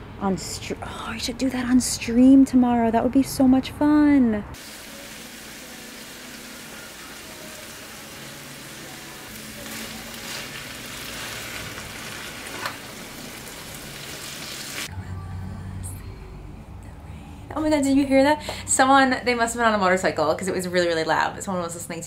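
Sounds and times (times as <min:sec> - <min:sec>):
vegetables sizzling in a pan: 0:04.6 - 0:14.9
spatula scraping a pan: 0:09.6 - 0:12.8.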